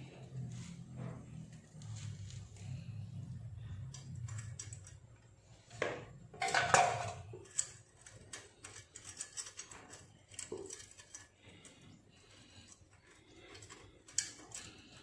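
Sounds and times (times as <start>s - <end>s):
metal exhaust parts clinking: 3.3s - 15.0s.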